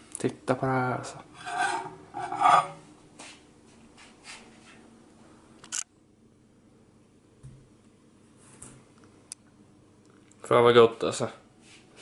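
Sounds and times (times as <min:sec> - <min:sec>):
ceramic plate scraping on glass: 0:01.3 - 0:02.9.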